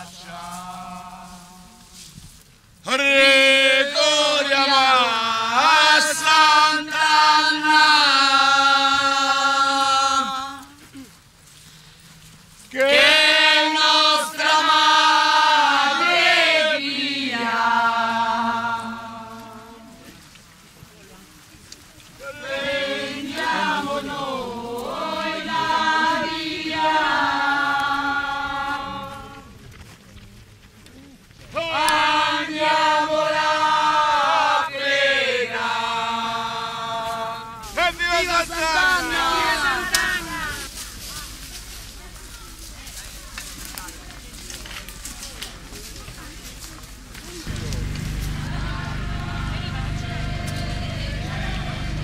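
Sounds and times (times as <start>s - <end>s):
woman singing a chant: 3.9s - 10.8s, 12.8s - 20.1s, 22.4s - 29.5s, 38.5s - 41.2s, 47.5s - 52.0s.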